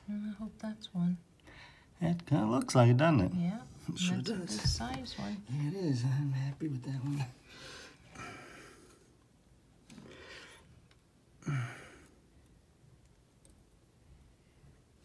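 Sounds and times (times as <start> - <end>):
person sighing: 11.4 - 12.2.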